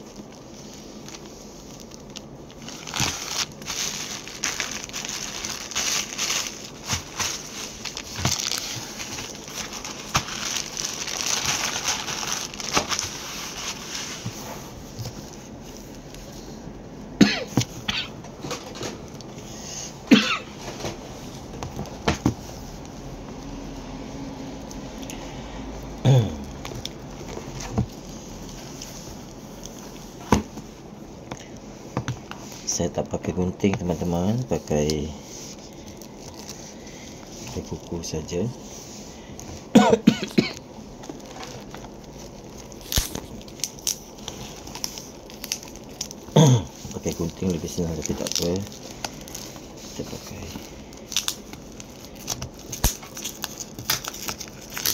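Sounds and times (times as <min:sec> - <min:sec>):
plastic wrap crinkling: 0:00.0 - 0:16.8, 0:20.4 - 0:54.9
packaging being torn open: 0:01.8 - 0:13.9, 0:41.1 - 0:49.6, 0:50.3 - 0:54.9.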